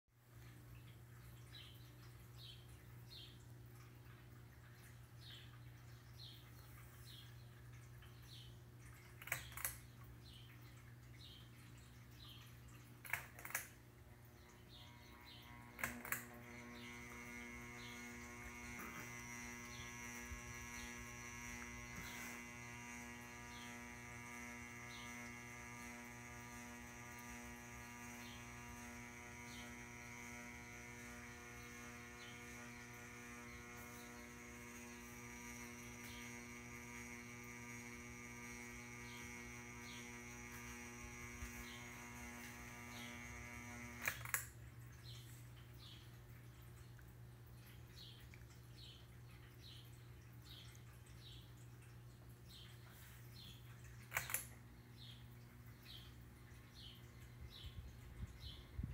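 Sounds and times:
ceiling fan electrical buzz: 0:00.2 - 0:58.9
low hum: 0:11.9 - 0:49.5.

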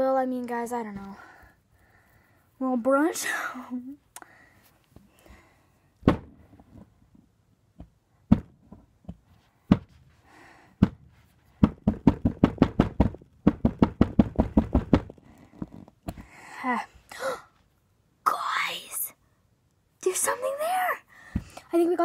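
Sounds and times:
wooden pick knocking on plaster: 0:07.8 - 0:10.0, 0:10.8 - 0:15.2.

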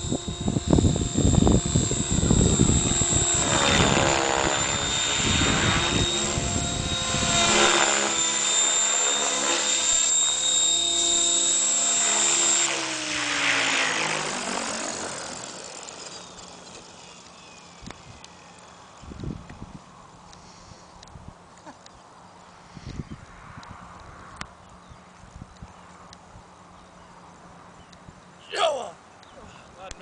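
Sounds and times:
wind buffeting microphone: 0:00.0 - 0:07.6, 0:19.0 - 0:19.9, 0:22.7 - 0:24.5
helicopter rotor blades: 0:00.0 - 0:20.2
high electric motor whine: 0:00.0 - 0:21.4.

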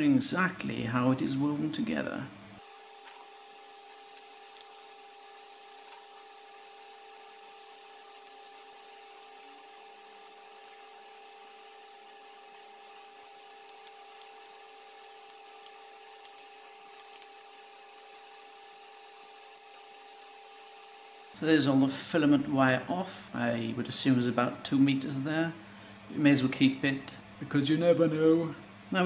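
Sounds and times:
electrical hum: 0:00.0 - 0:29.0
wire handling ticks and rubbing: 0:05.6 - 0:11.8, 0:12.4 - 0:18.4.

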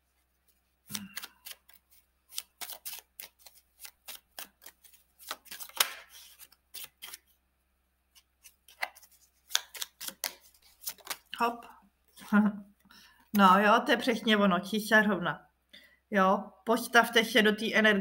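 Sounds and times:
cards being shuffled by hand: 0:00.3 - 0:07.4, 0:08.2 - 0:11.4.

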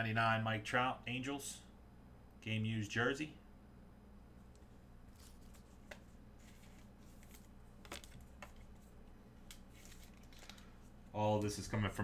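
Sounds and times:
trading cards rustling: 0:05.1 - 0:11.6.

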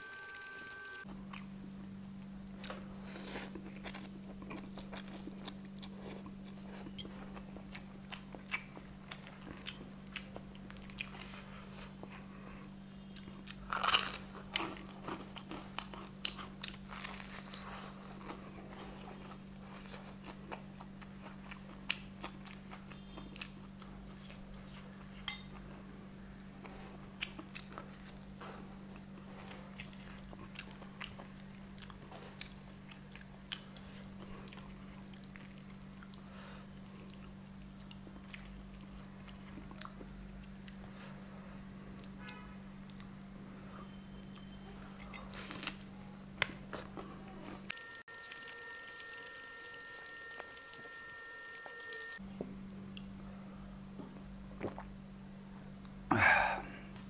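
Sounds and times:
steady low hum: 0:00.0 - 0:57.0
chewing and crunchy bites: 0:02.5 - 0:12.3, 0:13.1 - 0:25.2, 0:26.6 - 0:41.0, 0:44.2 - 0:52.2.

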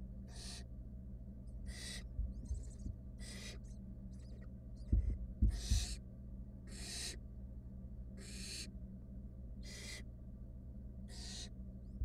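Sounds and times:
owl nestlings hissing: 0:00.3 - 0:00.7, 0:01.6 - 0:06.0, 0:06.7 - 0:07.2, 0:08.2 - 0:08.7, 0:09.6 - 0:10.0, 0:11.1 - 0:11.5
dull thumps: 0:04.9 - 0:06.0.

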